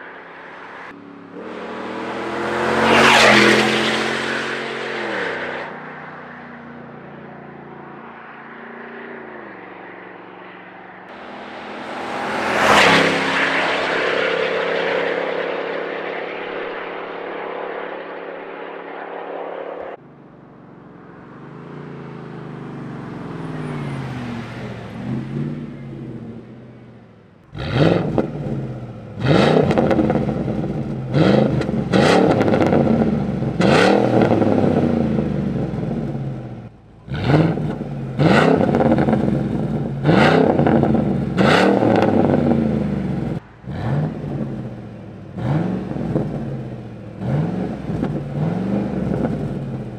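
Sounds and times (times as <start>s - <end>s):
truck engine driving past: 0.0s - 49.9s
engine revving sharply: 1.3s - 6.1s, 11.1s - 20.0s, 27.5s - 49.9s.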